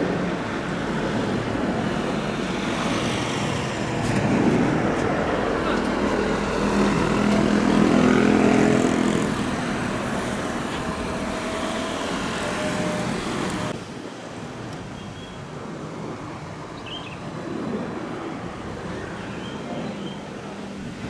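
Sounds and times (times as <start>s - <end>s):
jet engine drone: 0.0s - 13.8s.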